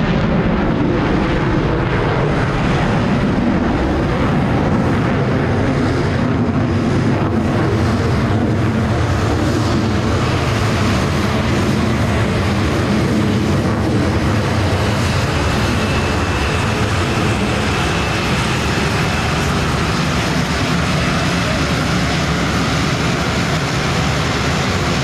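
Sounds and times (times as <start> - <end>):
turboprop plane taxiing: 0.0 - 25.0.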